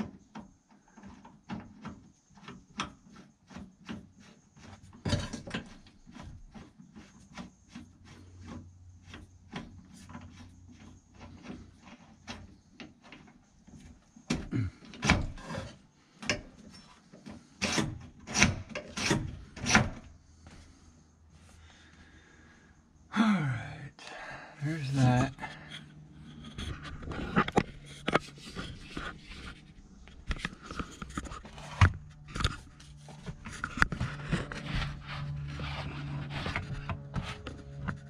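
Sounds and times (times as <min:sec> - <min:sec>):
knocks and rattles: 0:01.0 - 0:07.8.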